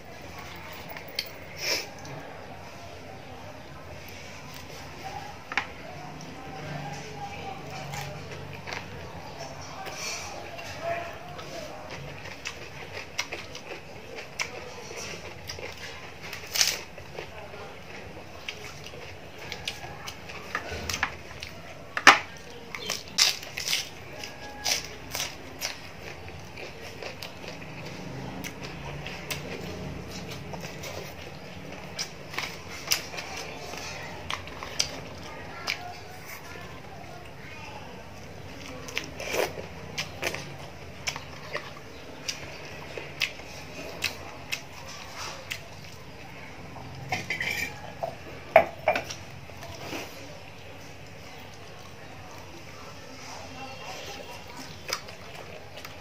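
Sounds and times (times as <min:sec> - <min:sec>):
crunching fried fish: 0:03.6 - 0:56.0
chewing with mouth smacks: 0:07.7 - 0:37.4, 0:38.2 - 0:48.2, 0:49.0 - 0:56.0
lettuce leaves snapping: 0:16.3 - 0:16.9, 0:22.0 - 0:25.8.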